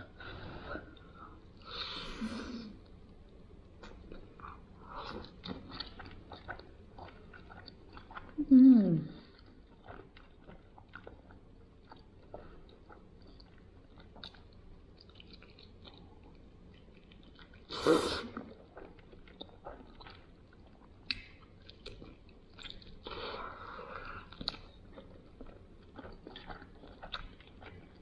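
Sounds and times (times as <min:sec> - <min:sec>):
chewing and biting: 0:03.8 - 0:08.4, 0:09.3 - 0:17.7, 0:18.4 - 0:23.3, 0:23.9 - 0:28.0.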